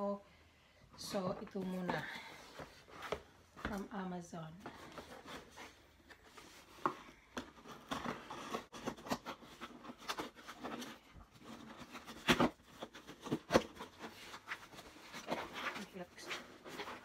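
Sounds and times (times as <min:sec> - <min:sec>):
cardboard rustling and scraping: 0:01.3 - 0:03.9, 0:04.5 - 0:17.0.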